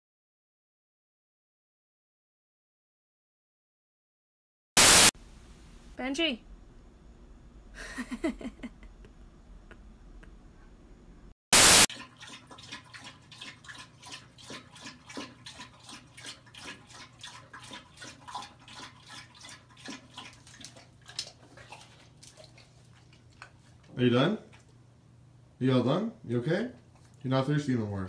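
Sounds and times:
dog lapping water: 0:11.9 - 0:24.8, 0:26.8 - 0:27.4.

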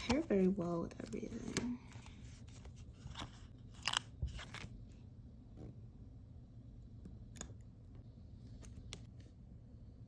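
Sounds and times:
stickers being peeled: 0:03.1 - 0:04.7.

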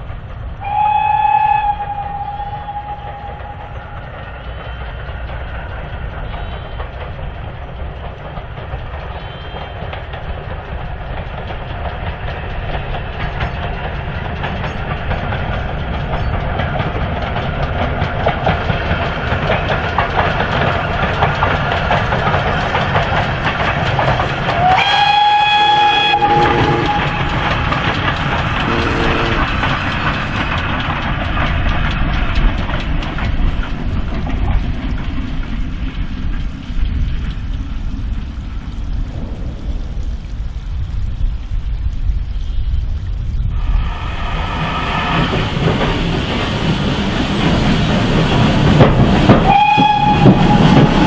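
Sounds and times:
train clicking over rail joints: 0:00.0 - 0:39.4, 0:44.2 - 0:51.0
steam locomotive whistle: 0:00.6 - 0:03.9, 0:24.5 - 0:27.6, 0:28.6 - 0:29.6, 0:49.4 - 0:51.0.

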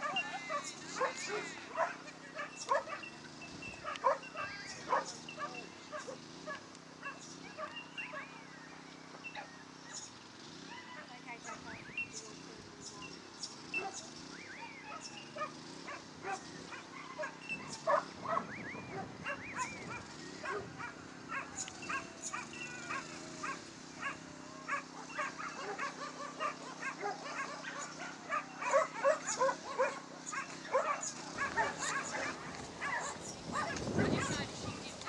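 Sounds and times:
dog whining: 0:00.0 - 0:03.2, 0:03.8 - 0:06.2, 0:16.2 - 0:34.4
dogs barking and yipping: 0:00.0 - 0:12.3, 0:12.9 - 0:35.0.

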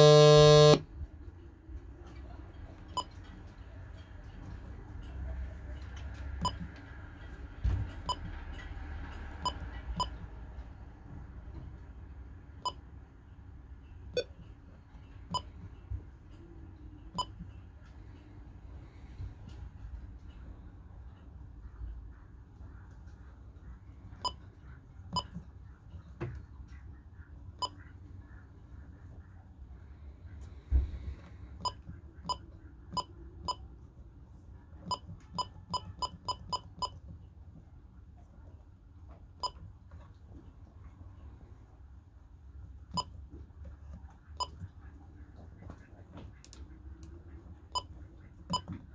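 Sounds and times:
short electronic key beeps: 0:00.0 - 0:00.8.

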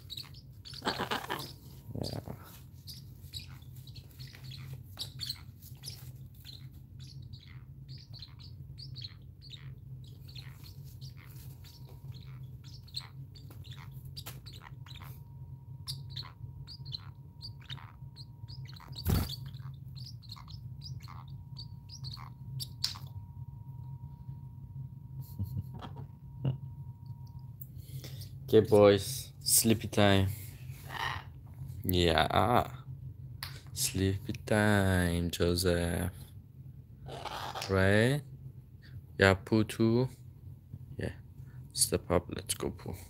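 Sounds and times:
parrots chirping: 0:00.0 - 0:23.4, 0:37.0 - 0:37.7.

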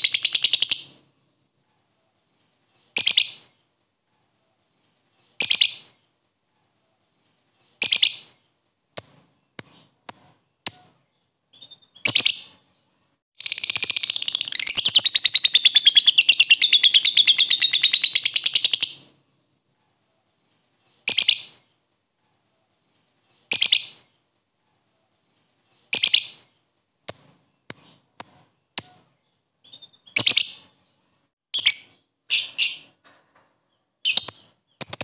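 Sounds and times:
bird chirping and trilling: 0:00.0 - 0:01.0, 0:07.8 - 0:12.8, 0:13.4 - 0:19.2, 0:25.9 - 0:33.0, 0:34.0 - 0:35.0.

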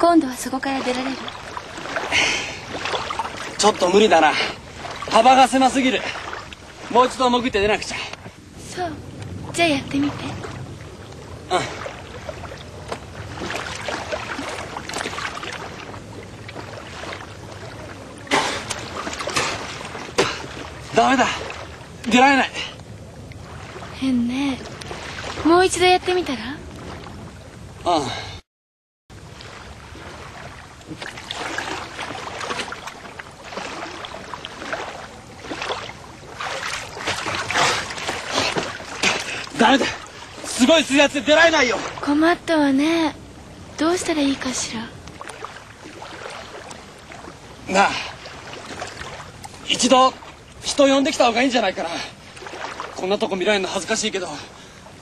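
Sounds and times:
sea water sloshing in rocks: 0:00.2 - 0:27.8, 0:29.2 - 0:42.5, 0:43.2 - 0:55.0
loud water splash: 0:00.4 - 0:22.8, 0:29.2 - 0:42.2.

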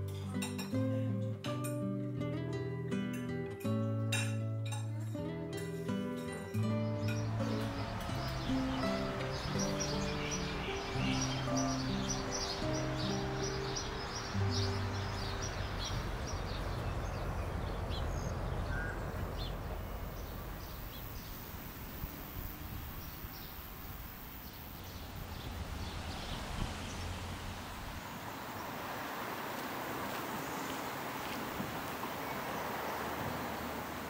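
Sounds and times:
bird chirps: 0:06.2 - 0:27.1.

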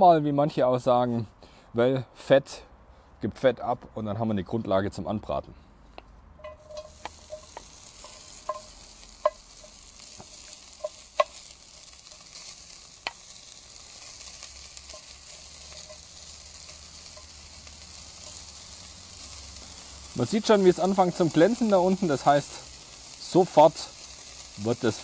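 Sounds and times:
pork sizzling in pot: 0:06.4 - 0:25.0.

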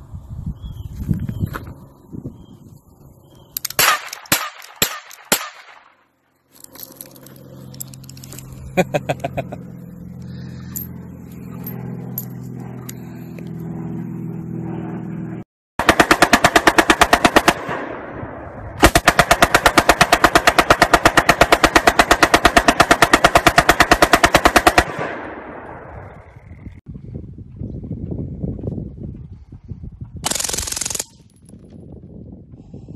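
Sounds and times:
machine gun firing bursts: 0:15.8 - 0:18.0, 0:18.8 - 0:25.6, 0:30.2 - 0:31.2.

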